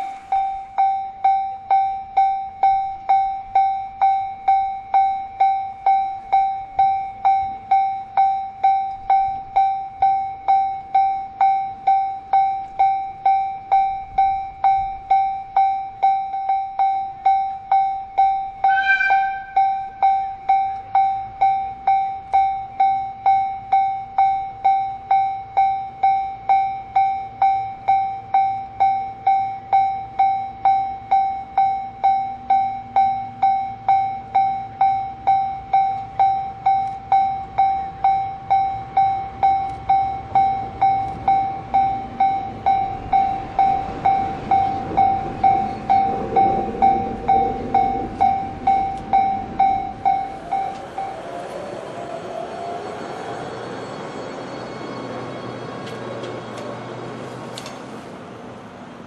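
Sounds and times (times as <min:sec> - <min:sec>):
level crossing warning bell: 0:00.0 - 0:57.8
locomotive engine and running noise: 0:19.3 - 0:59.0.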